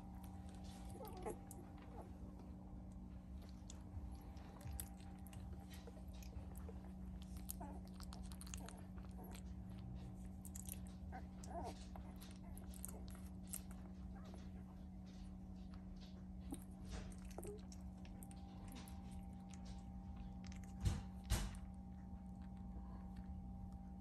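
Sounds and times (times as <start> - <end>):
steady low hum: 0.0 - 24.0
puppies squeaking: 0.3 - 2.3.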